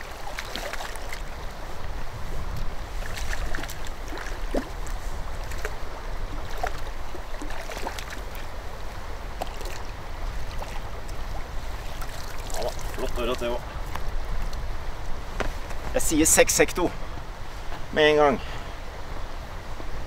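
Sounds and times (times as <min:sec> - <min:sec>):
fish splashing at the surface: 0:00.0 - 0:01.4, 0:03.0 - 0:05.8, 0:06.4 - 0:08.5, 0:09.4 - 0:10.9, 0:11.8 - 0:13.2
wind rumble on microphone: 0:00.0 - 0:16.0.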